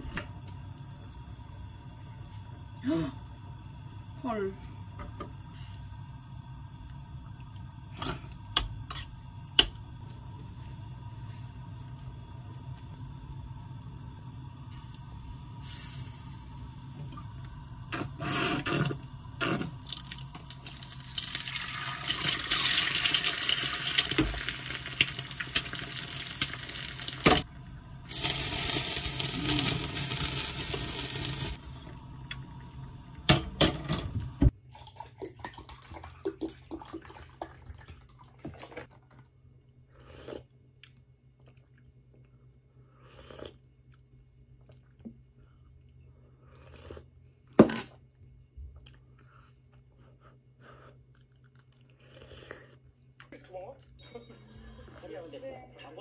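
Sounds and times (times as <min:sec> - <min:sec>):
eggs sizzling in hot oil: 0:03.3 - 0:34.6.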